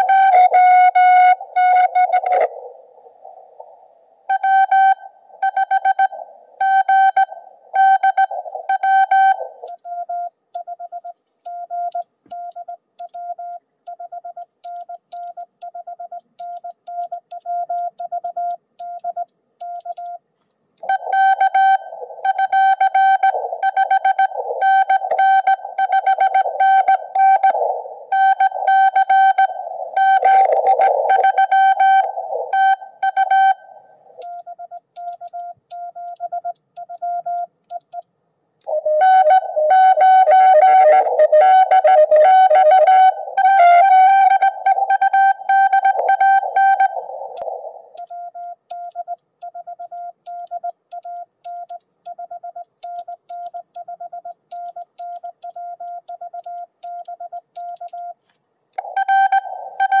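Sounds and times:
radio band hiss: 0.0 - 4.2, 20.8 - 22.4, 23.2 - 33.1, 45.8 - 48.0
low morse code tones: 0.0 - 60.0
high morse code tones: 4.3 - 60.0
radio static burst: 23.2 - 33.0.

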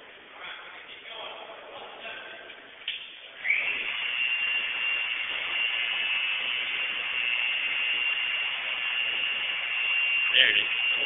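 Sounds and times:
high-pitched whine: 3.4 - 11.0.

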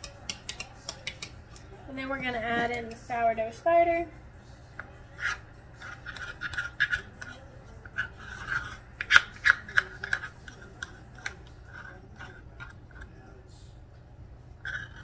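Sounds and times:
spoon scraping metal cup: 5.1 - 13.1, 14.6 - 15.0.

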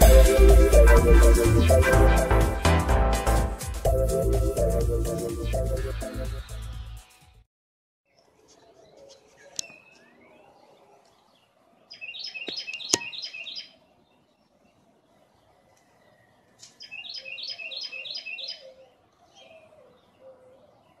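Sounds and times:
songbird high repeated notes: 0.0 - 6.6.

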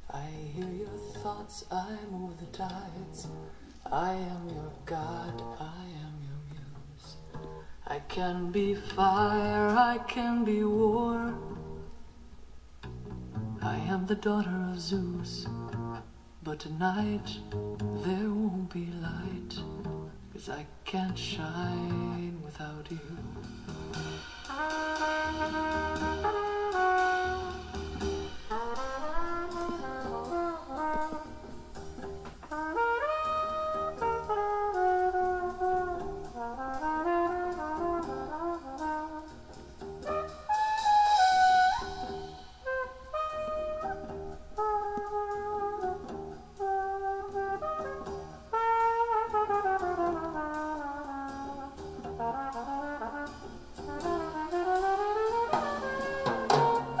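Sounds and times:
instrumental music through a speaker: 0.0 - 57.0
brass-like sliding melody: 23.9 - 57.0.

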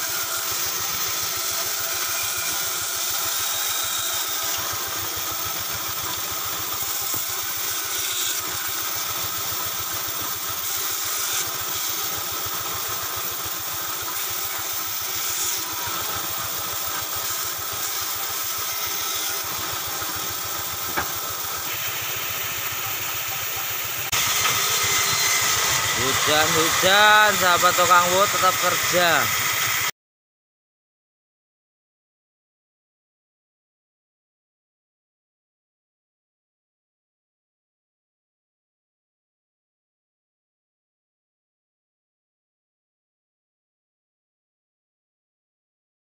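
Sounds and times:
band saw cutting wood: 0.0 - 29.9.

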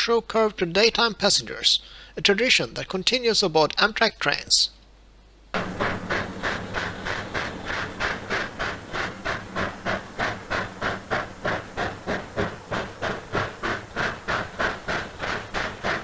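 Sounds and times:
steam locomotive chuffing: 5.6 - 16.0.

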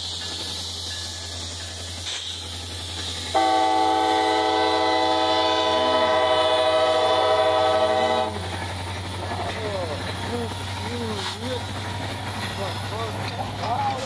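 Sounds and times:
locomotive air horn blast: 3.3 - 8.4
diesel engines droning: 3.3 - 14.0.

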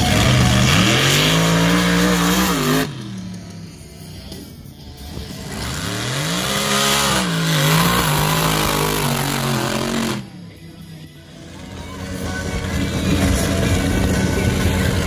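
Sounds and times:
truck engine revving hard: 0.0 - 3.4, 5.2 - 10.4.

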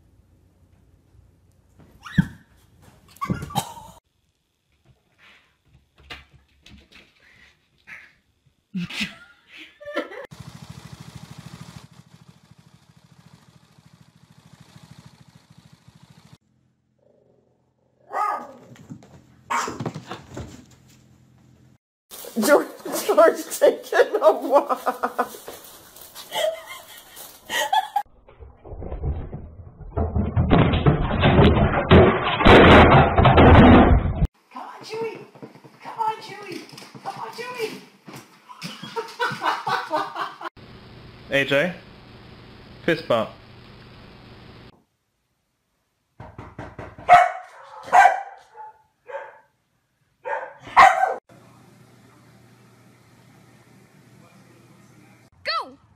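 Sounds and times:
dog barking: 18.0 - 18.7, 19.5 - 19.9, 47.0 - 49.5, 50.2 - 51.2
muffled thumps and knocks: 46.2 - 47.1.

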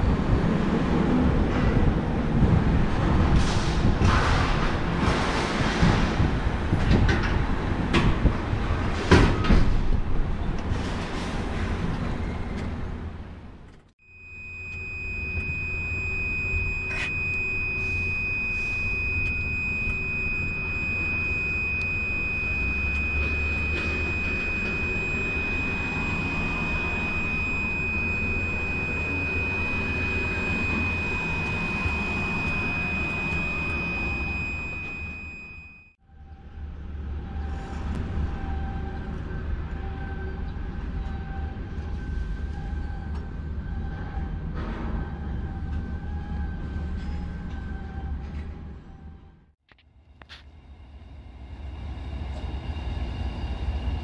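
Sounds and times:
steady high-pitched tone: 14.0 - 36.0.

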